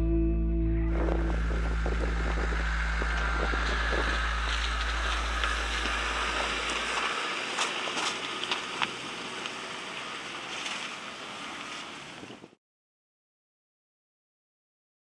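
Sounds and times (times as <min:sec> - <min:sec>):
background music: 0:00.0 - 0:03.7
car engine: 0:00.0 - 0:12.5
wind on microphone: 0:00.9 - 0:09.1
tyres crunching on gravel: 0:01.2 - 0:12.1.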